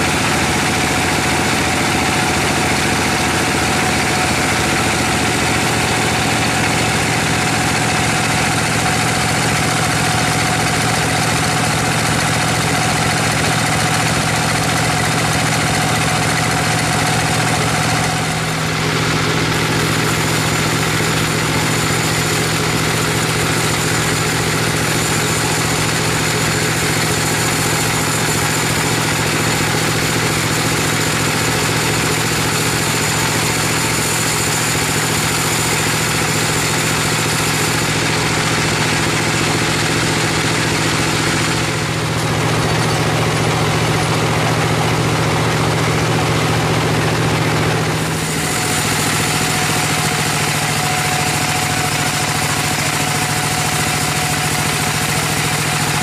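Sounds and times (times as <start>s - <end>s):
engine driving band saw droning: 0.0s - 56.0s.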